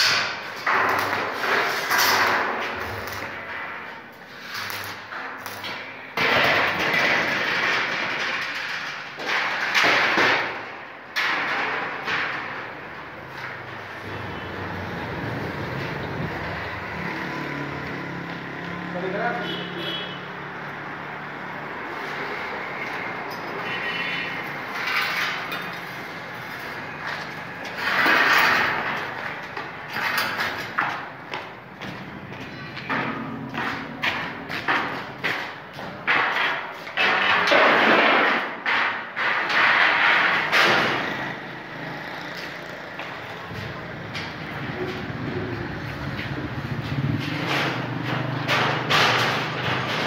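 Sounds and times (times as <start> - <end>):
metal gate scraping on concrete: 0.0 - 9.8, 21.3 - 30.8, 34.8 - 50.0.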